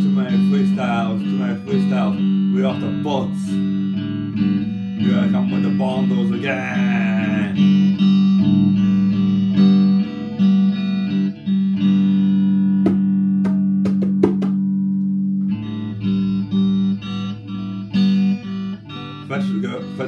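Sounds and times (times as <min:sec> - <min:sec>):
electric guitar riff: 0:00.0 - 0:20.0
sharp taps: 0:12.8 - 0:14.7.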